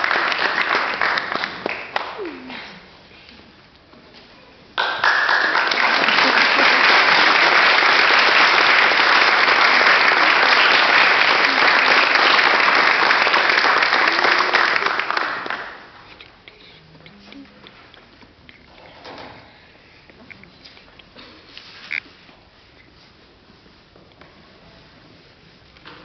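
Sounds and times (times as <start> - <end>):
audience applauding: 0.0 - 2.6, 4.8 - 16.0.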